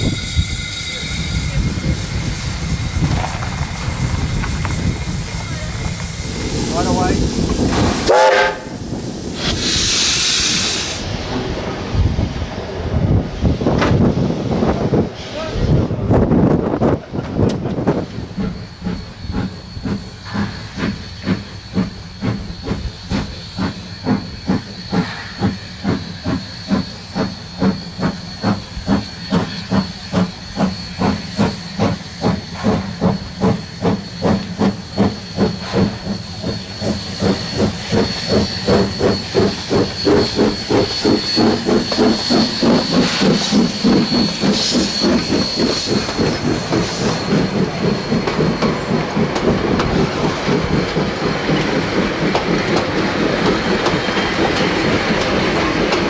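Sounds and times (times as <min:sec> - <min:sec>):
steam hiss: 0:00.0 - 0:56.0
steam locomotive chuffing: 0:00.0 - 0:56.0.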